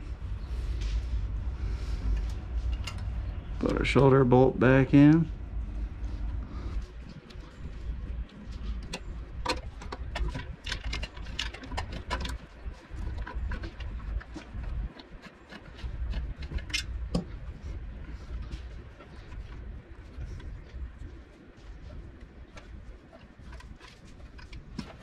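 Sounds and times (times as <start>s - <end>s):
metal tools clicking and tapping: 8.8s - 17.3s.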